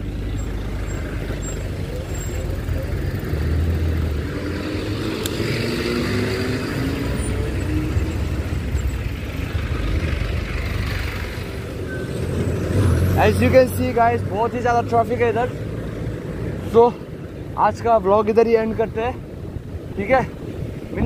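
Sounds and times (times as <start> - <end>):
motorcycle engine revving: 0.0 - 14.2
road traffic: 0.0 - 21.0
wind on microphone: 19.2 - 21.0.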